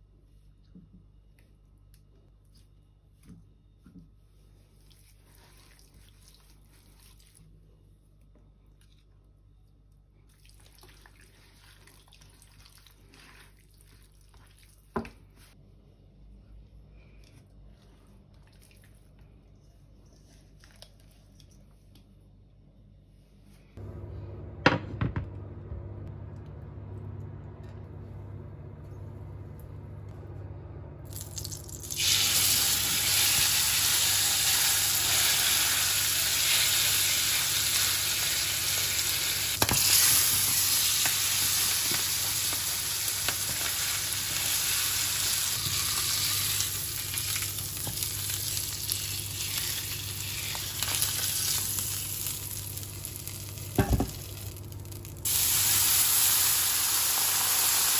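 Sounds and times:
low hum: 21.4 - 32.0
meat sizzling in a pan: 31.8 - 57.9.

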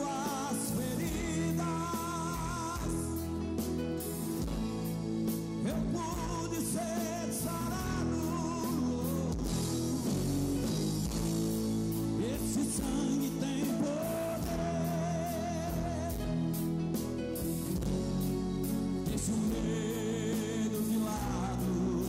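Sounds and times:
man singing: 0.0 - 3.7, 5.6 - 10.7, 11.9 - 17.0, 18.6 - 22.0
electric guitar: 0.0 - 22.0
live band playing: 0.0 - 22.0.

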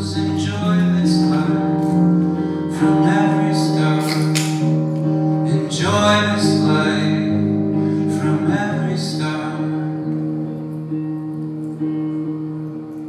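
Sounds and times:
man singing: 0.0 - 10.4
electric guitar: 0.0 - 13.0
keyboard chords: 0.0 - 13.0.

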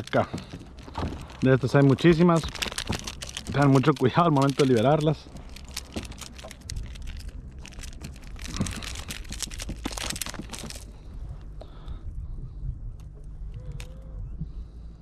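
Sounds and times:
water splashing and crackling: 0.0 - 11.0.

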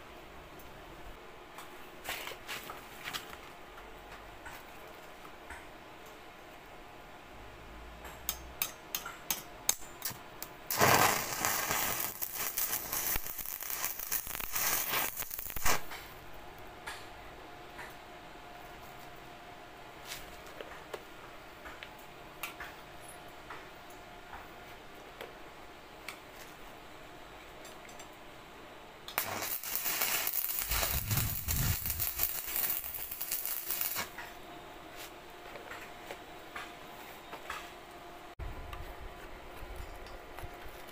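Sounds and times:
welding arc crackling: 10.7 - 16.1, 29.1 - 34.2.

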